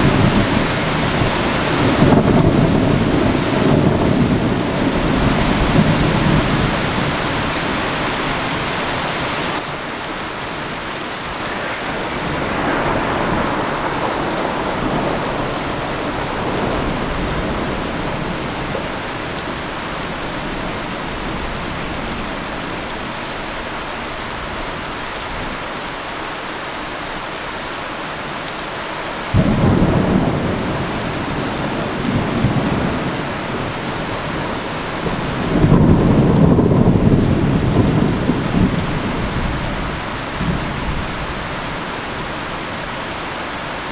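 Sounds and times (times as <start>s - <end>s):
loud thunderclap: 0.0s - 8.8s, 11.4s - 22.2s, 29.3s - 41.5s
thunder rumbling: 0.0s - 25.5s, 29.2s - 43.9s
heavy rain: 0.0s - 43.9s.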